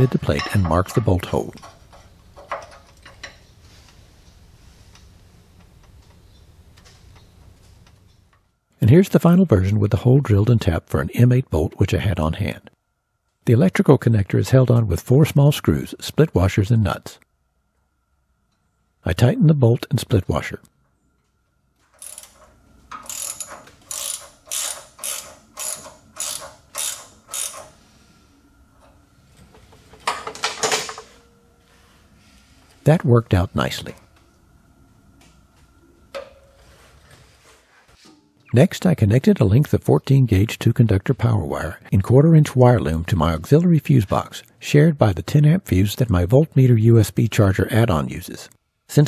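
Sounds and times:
faint low hum: 0.0s - 49.0s
ratchet wrench clicking: 22.0s - 27.8s.

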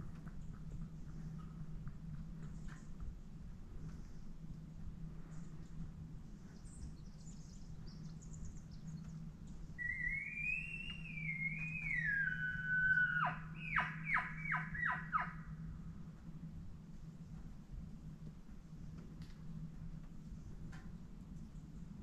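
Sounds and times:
elk bugle whistle: 9.8s - 15.3s.

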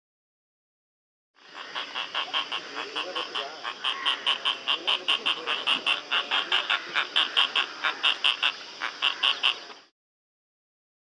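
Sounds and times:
murmur of low bird calls: 1.4s - 9.9s.

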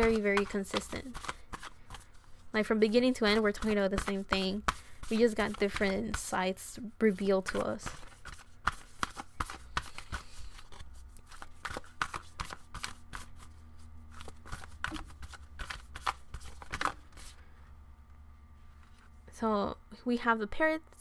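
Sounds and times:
cards being shuffled: 0.0s - 2.5s, 3.1s - 6.4s, 7.1s - 17.4s
faint steady hum: 0.0s - 21.0s.

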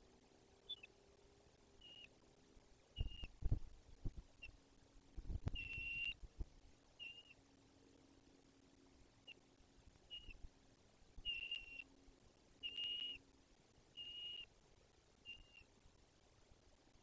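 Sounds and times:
eagle whistled calls: 0.6s - 0.9s, 1.8s - 2.1s, 3.0s - 3.3s, 5.6s - 6.2s, 7.0s - 7.4s, 10.1s - 10.4s, 11.2s - 11.9s, 12.6s - 13.2s, 14.0s - 14.5s, 15.2s - 15.7s.

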